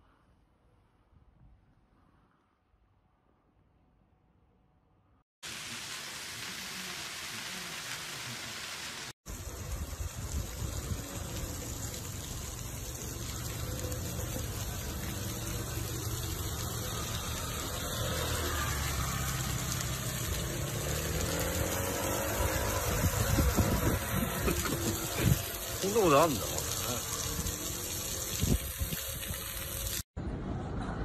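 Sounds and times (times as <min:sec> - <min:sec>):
water gushing from pipe: 0:05.4 - 0:30.0.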